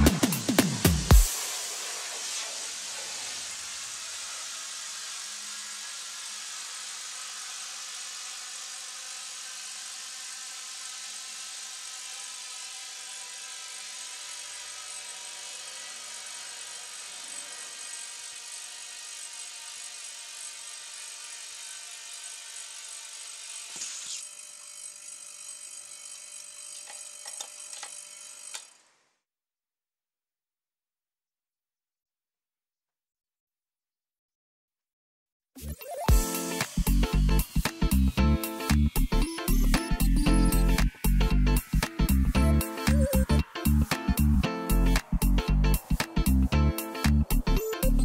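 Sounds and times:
compressed air rushing through hose: 0.3 - 8.8.

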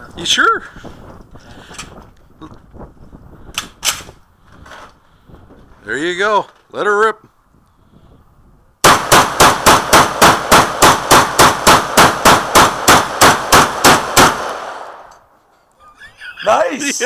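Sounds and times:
shotgun firing rapidly: 8.8 - 15.0
gunshot echo: 8.8 - 15.1.

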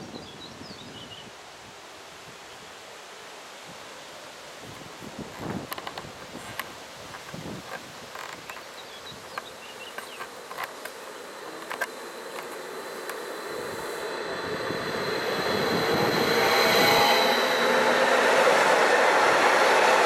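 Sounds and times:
electric train passing with whine: 9.1 - 20.0.

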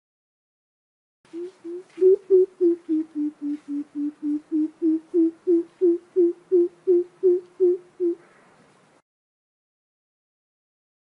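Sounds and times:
bird deep hooting call: 1.3 - 8.3.

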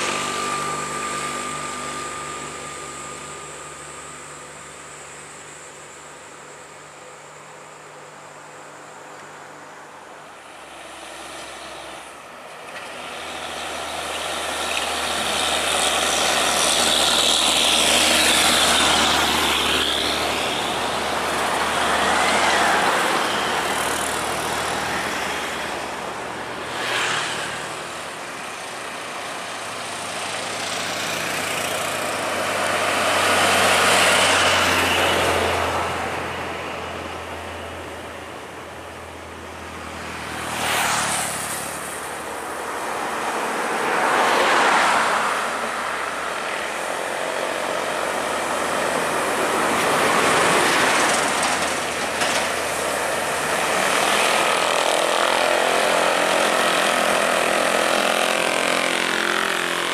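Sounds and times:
low engine drone: 0.0 - 10.8
vehicles passing on highway: 0.0 - 59.9.

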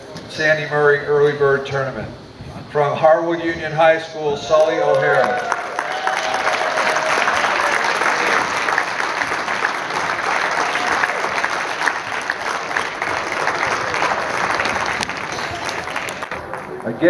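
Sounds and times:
audience applauding: 4.6 - 17.0.

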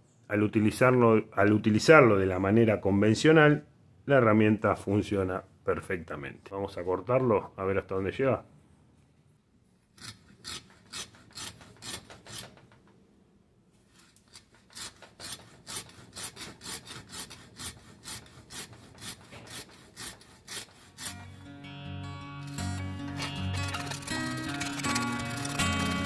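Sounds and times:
hacksaw cutting metal: 9.9 - 12.8, 14.0 - 21.8, 22.4 - 26.0.

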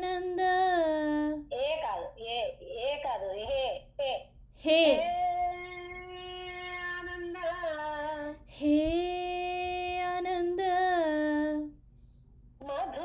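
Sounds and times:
woman singing devotional song: 0.0 - 1.5, 4.6 - 11.8.

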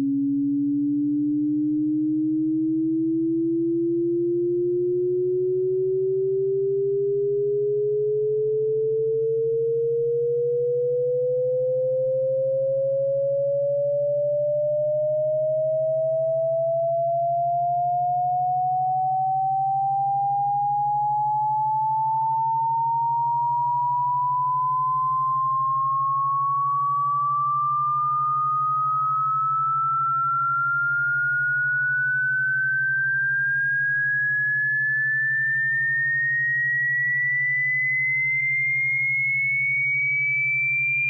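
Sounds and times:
rising electronic pure tone: 18.4 - 40.0.

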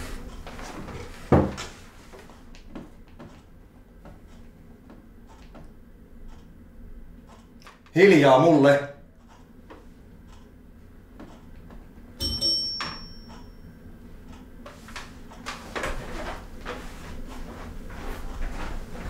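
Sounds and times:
wooden chair scraping: 0.0 - 3.4, 14.7 - 19.0
bright bell ding: 12.2 - 13.7
footsteps: 16.0 - 19.0.

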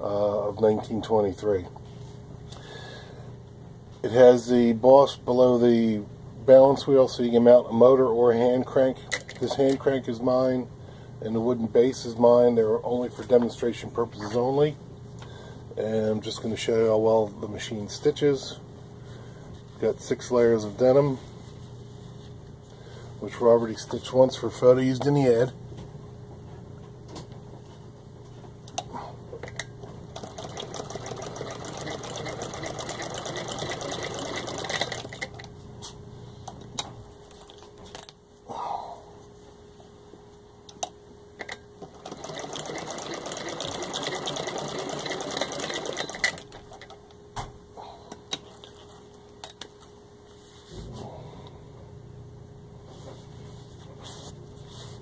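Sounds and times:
sewing machine ticking: 30.2 - 35.3, 41.9 - 47.0.

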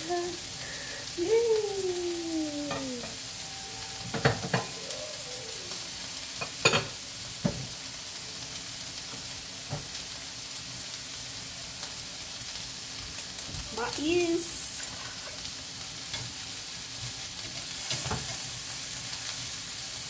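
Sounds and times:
meat sizzling in hot oil: 0.0 - 20.0.

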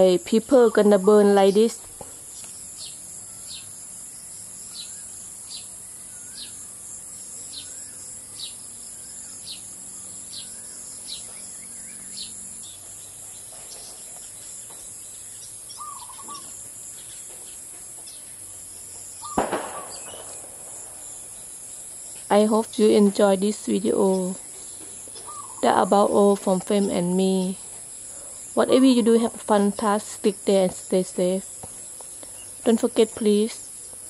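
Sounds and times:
soft bird chirps: 0.0 - 6.8, 7.4 - 28.6
high-pitched insect drone: 0.1 - 34.0
bird sharp falling chirp: 15.7 - 18.2, 19.2 - 21.5, 24.8 - 25.6.

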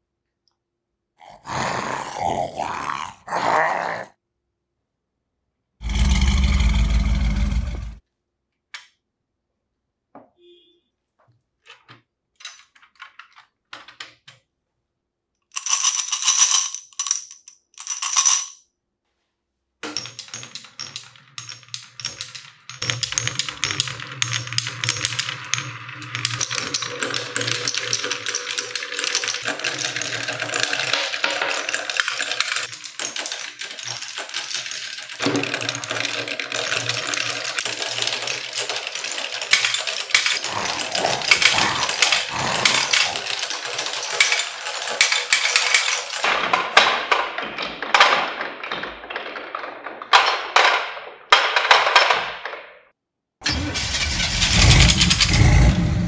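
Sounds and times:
marbles rattling on wooden tracks: 5.8 - 8.0, 15.5 - 18.6, 19.8 - 52.7.

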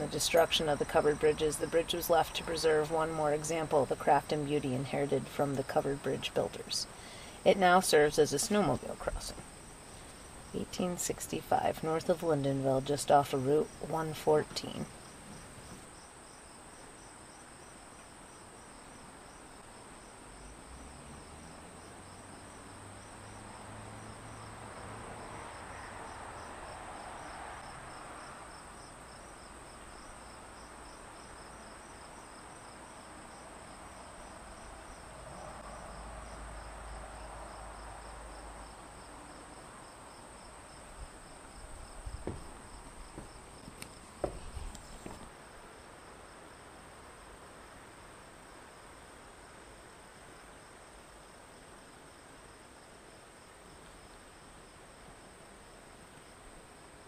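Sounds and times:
insects chirping: 0.0 - 49.6
sharp knocks: 42.2 - 45.3.

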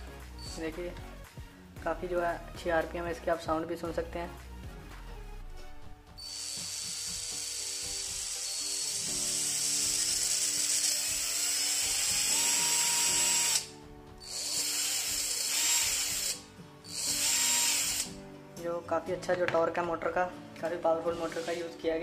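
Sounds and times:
electric motor whining: 6.2 - 18.2.

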